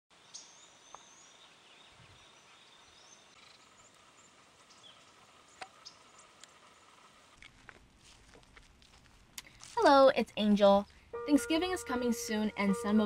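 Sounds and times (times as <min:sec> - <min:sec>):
distant birds calling: 0:00.2 - 0:07.5.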